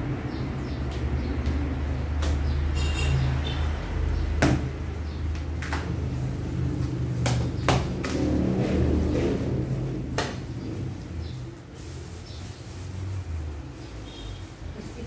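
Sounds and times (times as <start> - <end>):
sharp knocks and thumps: 4.4 - 6.1, 6.9 - 10.7.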